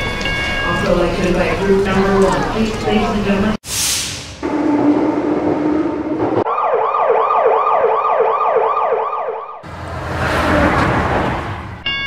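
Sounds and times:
emergency vehicle siren wailing: 6.4s - 10.9s.

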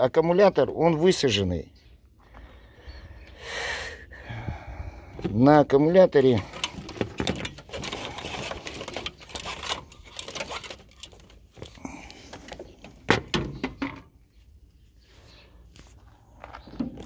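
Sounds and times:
rapid clicks and rattles: 6.4s - 12.4s.

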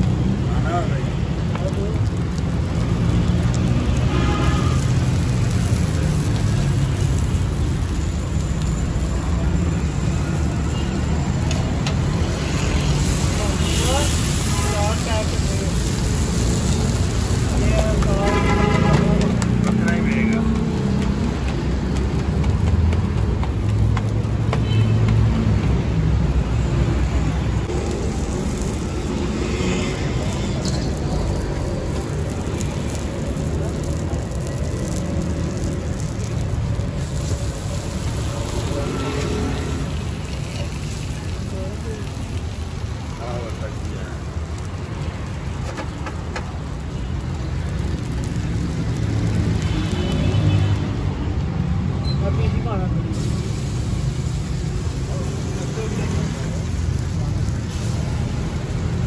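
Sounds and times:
flatbread sizzling in oil: 0.0s - 22.3s, 23.5s - 51.6s, 53.1s - 59.0s
bread frying on griddle: 0.0s - 59.0s
street noise rumble: 0.0s - 59.0s
vehicle passing: 11.7s - 42.2s.

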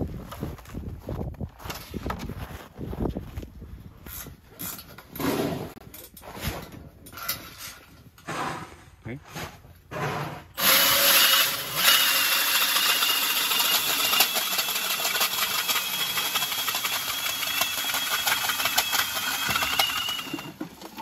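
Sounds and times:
ice auger motor running: 10.6s - 21.0s.

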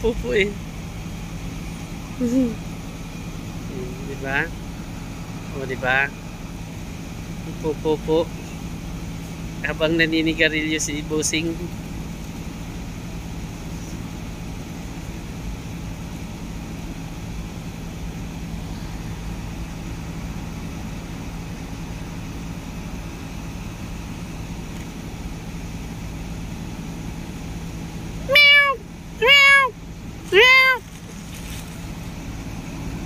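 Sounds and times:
steady mechanical hum: 0.0s - 33.0s.

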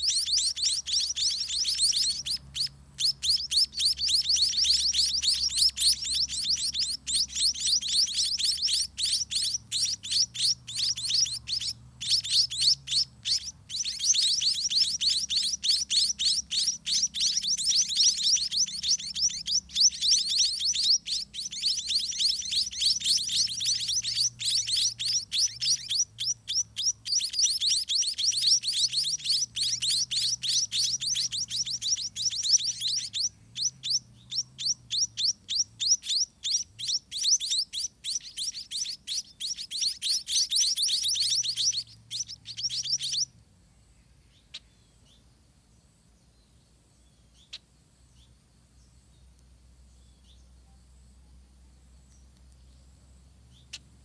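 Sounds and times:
nestlings chirping: 0.0s - 43.3s, 52.1s - 54.0s
faint clicks: 52.1s - 52.7s.

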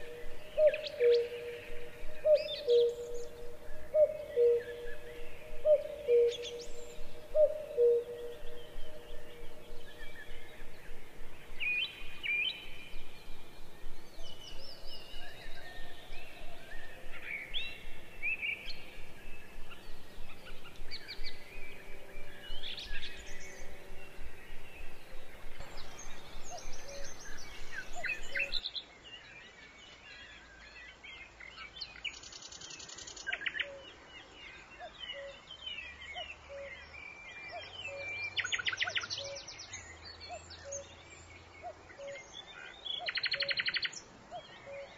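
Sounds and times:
rapid bird trills: 0.0s - 28.6s
small birds chirping: 0.0s - 44.9s.

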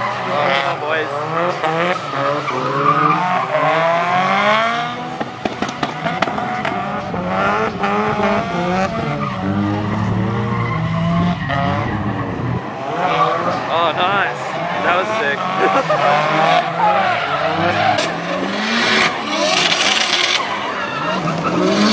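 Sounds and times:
car engines revving: 0.0s - 21.9s
tyres skidding on wet surface: 12.1s - 21.9s.

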